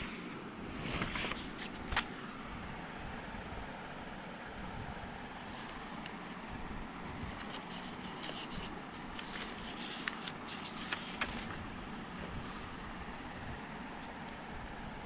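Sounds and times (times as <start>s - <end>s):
paper pages turning: 0.0s - 2.4s, 5.4s - 12.6s.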